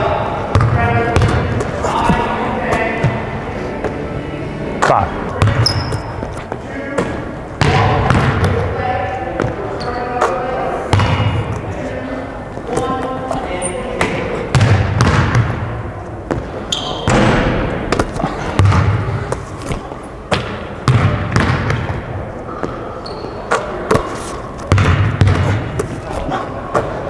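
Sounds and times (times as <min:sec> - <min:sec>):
basketball bouncing on gym floor: 0:00.5 - 0:02.2, 0:05.4 - 0:06.2, 0:07.0 - 0:08.7, 0:10.9 - 0:11.4, 0:14.0 - 0:15.7, 0:16.3 - 0:25.9.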